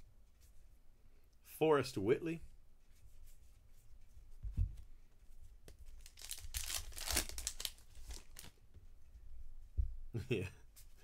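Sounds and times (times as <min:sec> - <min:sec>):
cards rustling: 0:05.7 - 0:08.6.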